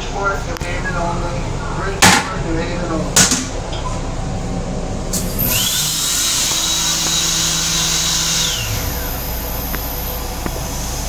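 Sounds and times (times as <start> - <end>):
train low rumble: 0.0 - 5.4, 7.8 - 11.0
vacuum toilet flushing: 5.2 - 11.0.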